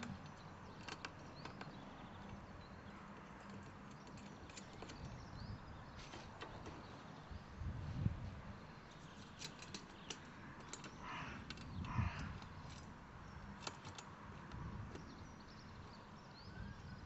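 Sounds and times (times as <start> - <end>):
metallic clicks of bolts: 9.2 - 12.9.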